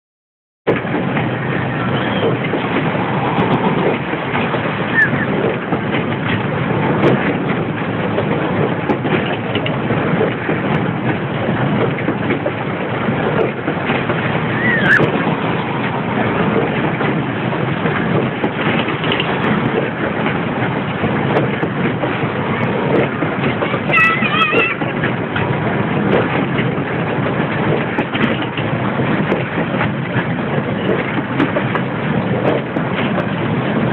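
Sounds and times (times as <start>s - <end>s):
high gliding squeak: 14.5s - 15.1s
kart engines racing: 14.5s - 15.2s.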